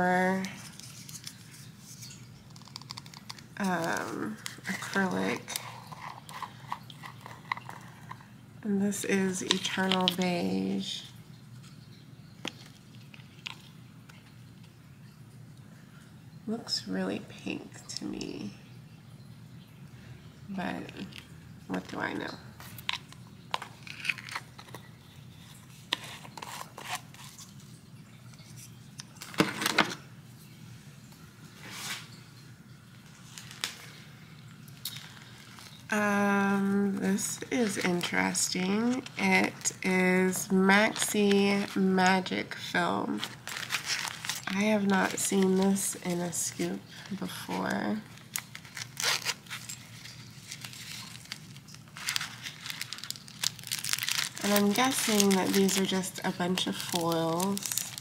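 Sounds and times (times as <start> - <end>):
foil sheets rustling: 2.8 - 8.2, 21.7 - 27.6, 34.8 - 58.0.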